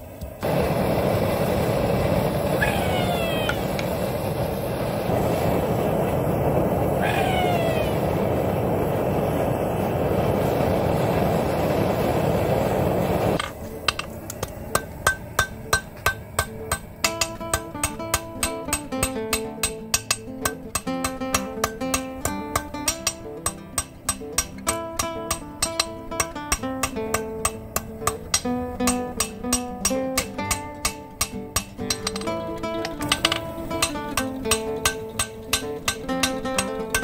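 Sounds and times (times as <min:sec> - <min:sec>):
forge burner rushing: 0:00.0 - 0:37.0
falling tones: 0:02.6 - 0:03.7, 0:07.0 - 0:08.1
hammer striking steel on anvil: 0:13.4 - 0:37.0
acoustic guitar music: 0:13.5 - 0:37.0.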